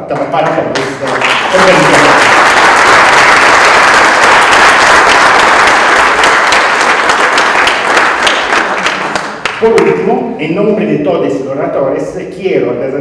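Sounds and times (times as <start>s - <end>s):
audience applause: 0.4s - 9.8s.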